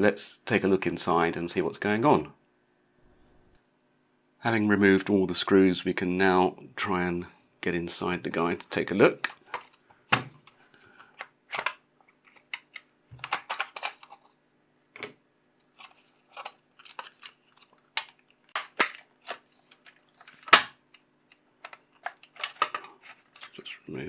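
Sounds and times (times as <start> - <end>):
plastic clips clicking and cracking: 10.4 - 14.2, 15.8 - 23.6.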